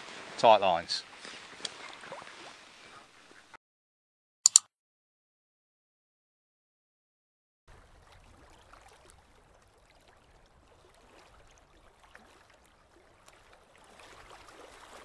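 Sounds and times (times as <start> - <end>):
small ripples lapping at water's edge: 1.0 - 3.0, 7.7 - 15.0.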